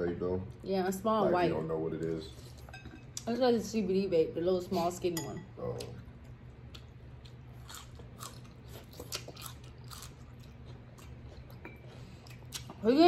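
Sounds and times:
quiet chewing: 0:05.8 - 0:12.8.

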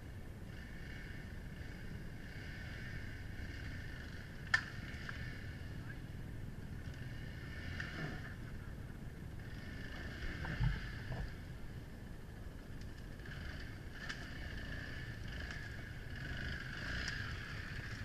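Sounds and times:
low outdoor rumble: 0:00.0 - 0:18.0
light ticks: 0:04.4 - 0:05.2.

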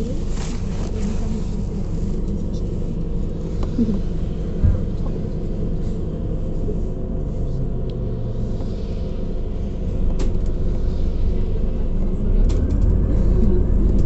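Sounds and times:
bus engine low rumble: 0:00.0 - 0:14.0
road noise: 0:10.8 - 0:14.0.

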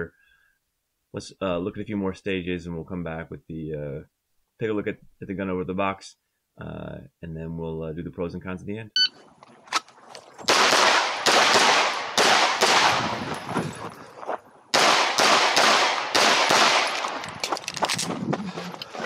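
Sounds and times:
pistol shots ringing: 0:10.5 - 0:13.4, 0:14.7 - 0:17.3.

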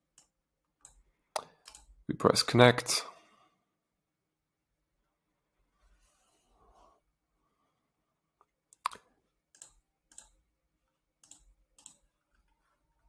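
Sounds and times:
computer mouse clicking: 0:00.1 - 0:02.0, 0:08.7 - 0:10.4, 0:11.2 - 0:12.1.

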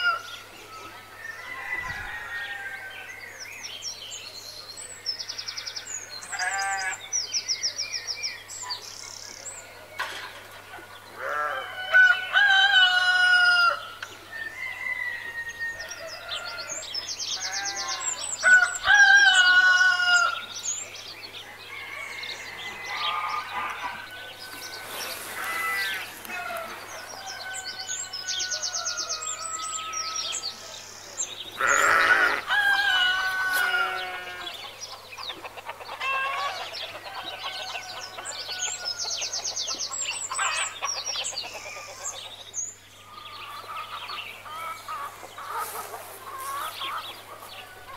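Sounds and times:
rooster crowing: 0:01.2 - 0:03.1, 0:21.7 - 0:30.6, 0:31.6 - 0:34.6
small birds chirping: 0:15.9 - 0:47.9
loud animal call: 0:31.6 - 0:34.6.

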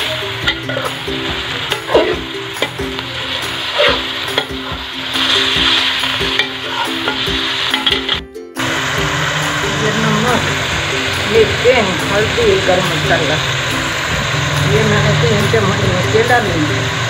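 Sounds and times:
metal spatula scraping pan: 0:00.0 - 0:08.2
meat and onions sizzling in oil: 0:00.0 - 0:17.0
music playing: 0:00.0 - 0:17.0.

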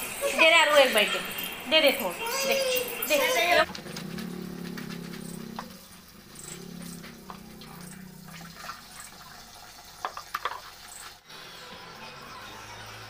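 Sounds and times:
tap water running into bucket: 0:07.3 - 0:11.2
clothes washed by hand splashing: 0:08.2 - 0:11.2.

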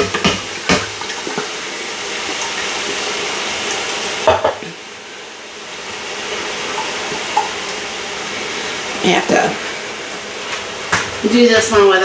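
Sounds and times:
knock on metal pot: 0:00.0 - 0:00.9, 0:04.2 - 0:04.7
tomato sauce sizzling: 0:00.0 - 0:12.0.

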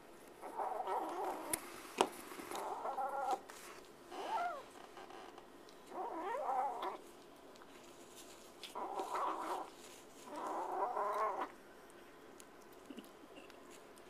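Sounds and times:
kitten yowling growls: 0:00.4 - 0:01.6, 0:02.6 - 0:03.4, 0:04.2 - 0:04.7, 0:05.9 - 0:07.0, 0:08.7 - 0:11.6.

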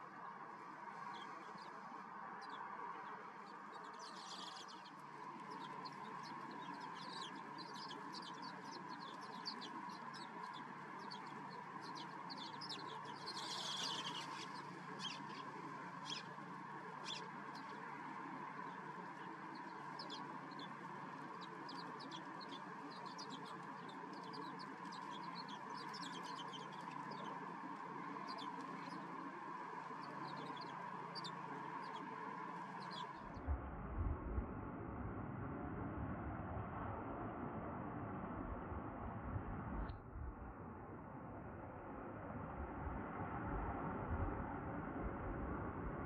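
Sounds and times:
steady background noise: 0:00.0 - 0:46.0
sparrows chirping: 0:03.4 - 0:33.2.

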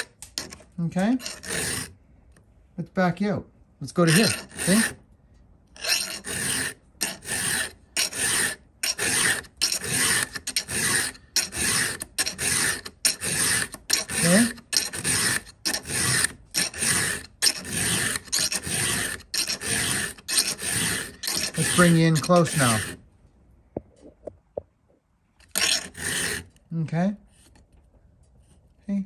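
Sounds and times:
file rasping on chain tooth: 0:00.0 - 0:02.0, 0:03.9 - 0:05.0, 0:05.8 - 0:23.0, 0:25.4 - 0:26.6.

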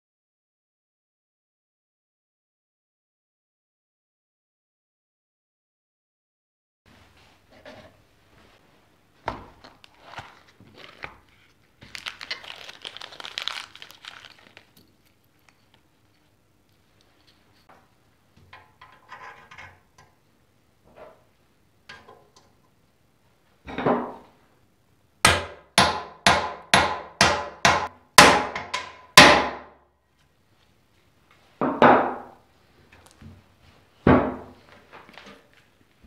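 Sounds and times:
hammer striking metal: 0:25.3 - 0:29.7.

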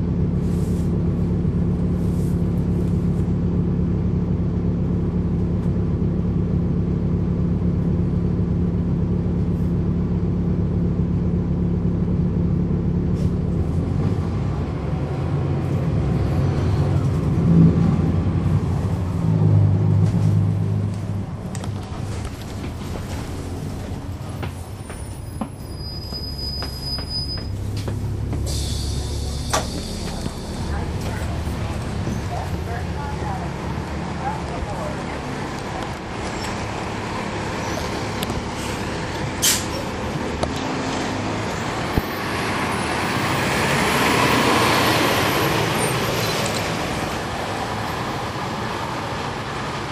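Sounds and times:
bus diesel engine running: 0:00.0 - 0:49.9
road noise: 0:00.0 - 0:49.9
rattles and clicks from bus body: 0:19.9 - 0:33.0, 0:34.3 - 0:37.0, 0:37.8 - 0:41.2
high brake squeal: 0:24.8 - 0:27.6, 0:28.4 - 0:30.5, 0:37.5 - 0:38.2, 0:44.9 - 0:46.6.

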